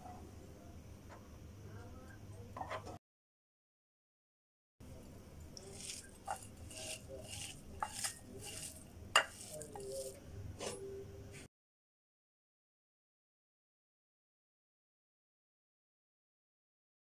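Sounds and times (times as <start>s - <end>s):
hand mixing food rustling: 5.5s - 10.2s.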